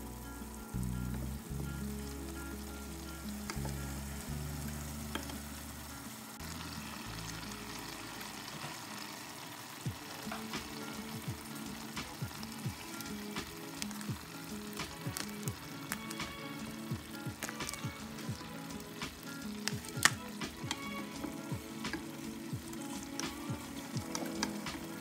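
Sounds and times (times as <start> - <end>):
stew simmering and sizzling in a pan: 0.0 - 25.0
background music with deep beat: 9.8 - 25.0.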